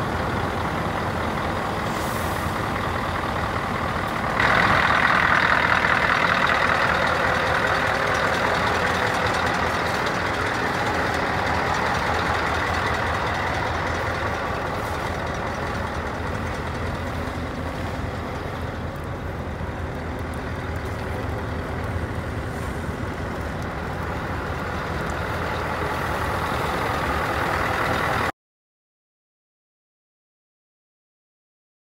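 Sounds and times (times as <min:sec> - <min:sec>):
diesel engine idling: 0:00.0 - 0:28.3
loud air hiss: 0:01.8 - 0:02.6.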